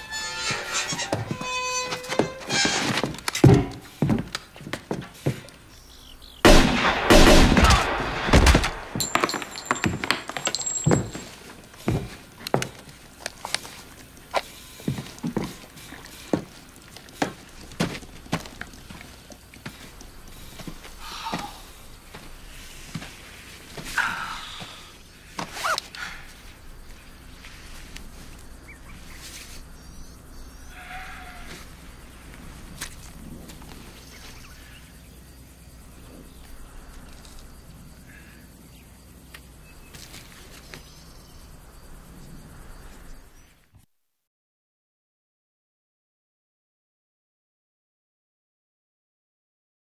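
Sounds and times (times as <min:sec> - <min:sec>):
boots thudding on dirt: 0:02.5 - 0:05.6, 0:08.4 - 0:22.3
steady hiss: 0:09.6 - 0:43.6.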